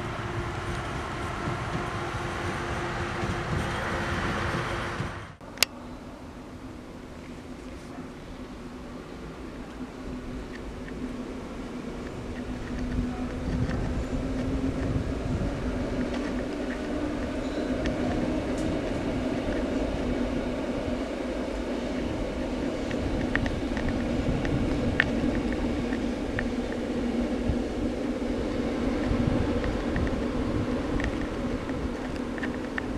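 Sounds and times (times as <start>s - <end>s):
distant train rumbling: 0.0s - 32.9s
faint clicks: 28.5s - 32.9s.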